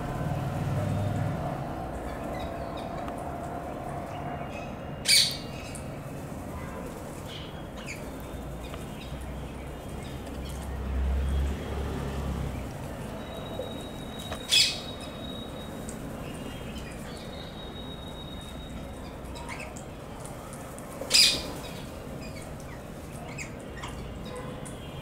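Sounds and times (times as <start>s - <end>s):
parakeet calls: 14.5s - 15.0s.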